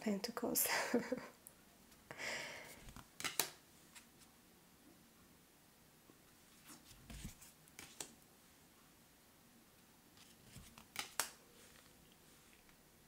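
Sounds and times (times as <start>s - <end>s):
cards sliding with light snaps: 2.8s - 4.1s, 6.6s - 8.2s, 10.2s - 12.8s.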